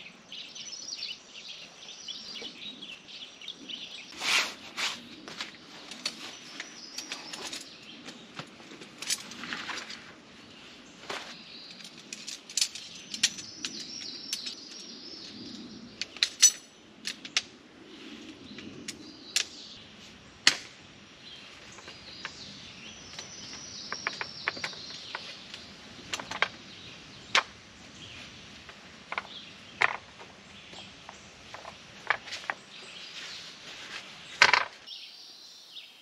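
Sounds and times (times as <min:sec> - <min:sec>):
birds chirping: 0:00.0 - 0:36.0
camp table frame clicking and snapping: 0:11.7 - 0:14.8, 0:16.0 - 0:17.5.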